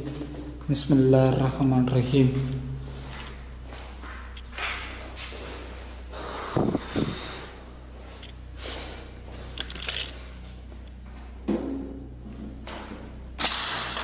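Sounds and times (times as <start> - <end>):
steady low hum: 0.0 - 14.0
footsteps: 2.0 - 5.9
hissing breaths: 6.1 - 7.7, 8.5 - 10.4.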